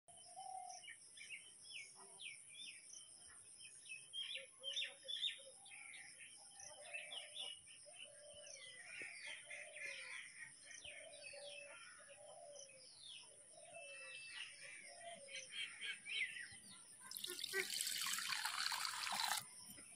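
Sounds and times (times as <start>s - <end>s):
birds chirping: 12.2s - 19.9s.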